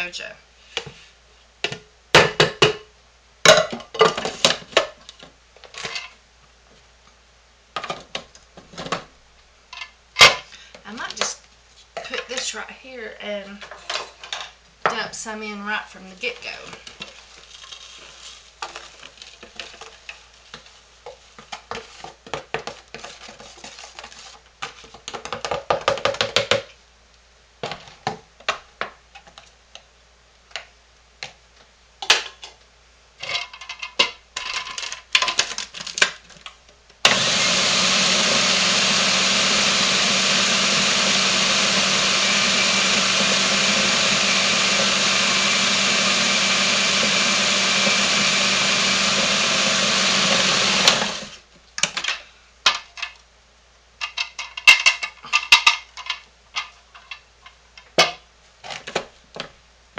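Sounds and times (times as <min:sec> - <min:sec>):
food processor motor running: 0:37.1 - 0:51.4.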